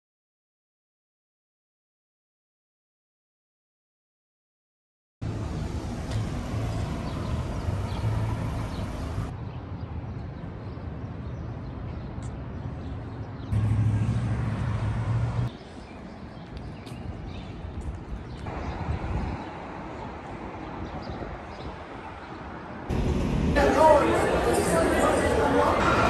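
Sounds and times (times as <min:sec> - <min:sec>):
hum of city traffic: 0:05.2 - 0:26.0.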